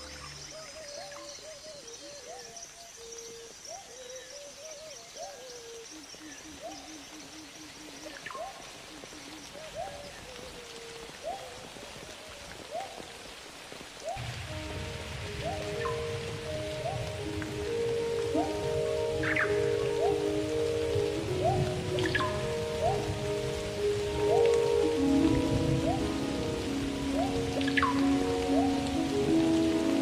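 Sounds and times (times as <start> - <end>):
steady hiss of rain or insects: 0.0 - 30.0
rising and falling animal calls: 15.4 - 30.0.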